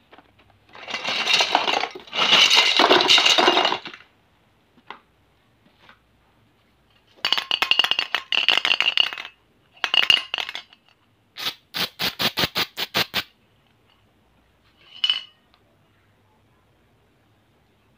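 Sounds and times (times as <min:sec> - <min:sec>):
plastic toys and candies rattling: 0:00.2 - 0:04.1, 0:07.1 - 0:11.0.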